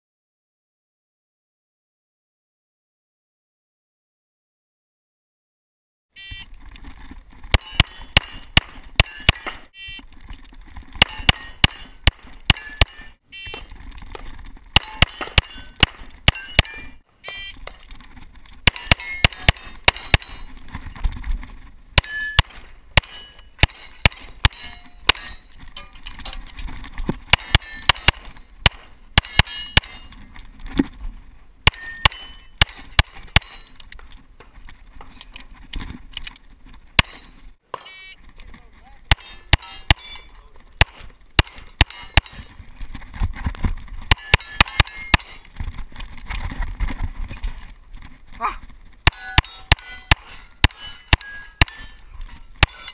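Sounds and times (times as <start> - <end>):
pistol shots: 7.5 - 9.7, 11.0 - 13.1, 14.8 - 16.9, 18.6 - 20.4, 22.0 - 25.4, 27.3 - 30.1, 31.6 - 33.7, 37.0 - 37.3, 39.1 - 40.2, 40.8 - 42.5, 44.1 - 45.5, 49.0 - 52.0, 52.6 - 52.9.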